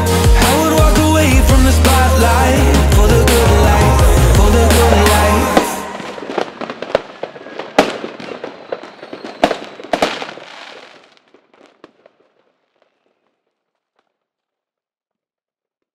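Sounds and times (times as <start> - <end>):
fireworks crackling: 1.7 - 14.2
fireworks sharp bangs: 3.2 - 13.0.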